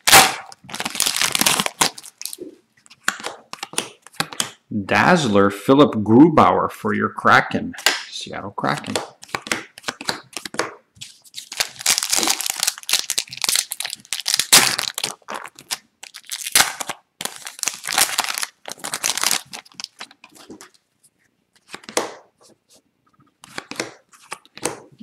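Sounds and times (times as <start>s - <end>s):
wrapper tearing and crinkling: 0.0s - 2.4s, 11.3s - 20.2s.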